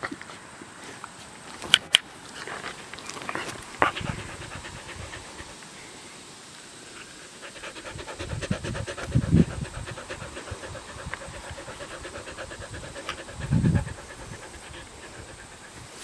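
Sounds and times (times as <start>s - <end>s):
dog panting: 2.4s - 5.8s, 6.8s - 16.0s.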